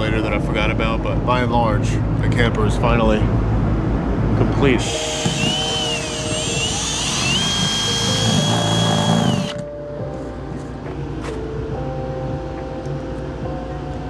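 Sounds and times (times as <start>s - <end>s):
cordless drill motor whine: 4.8s - 9.6s.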